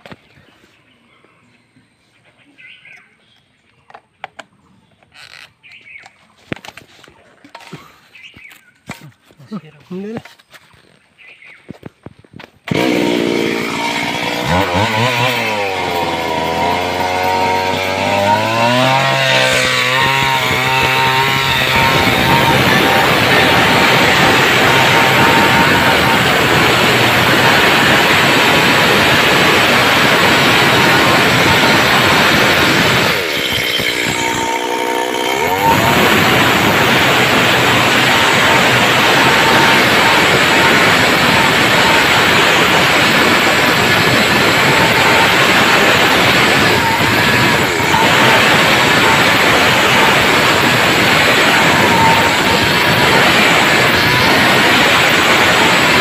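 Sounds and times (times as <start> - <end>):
chainsaw engine revving: 12.7 - 56.0.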